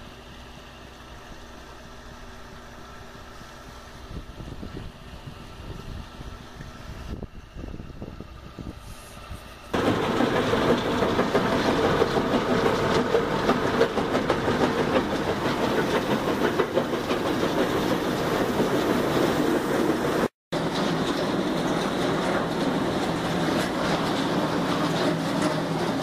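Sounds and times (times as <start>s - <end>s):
rock rattling through steel chute: 9.8s - 26.0s.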